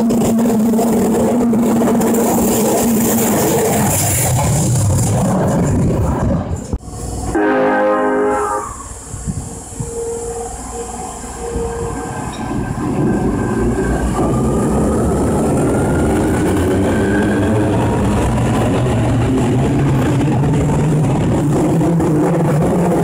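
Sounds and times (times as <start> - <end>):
wheels rumbling on rails: 0.0 - 7.4, 8.2 - 23.0
train motor whine: 6.8 - 20.3.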